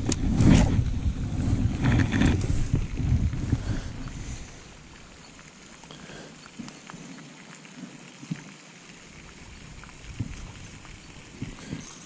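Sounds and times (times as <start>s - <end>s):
wind buffeting microphone: 0.0s - 5.3s, 9.4s - 11.9s.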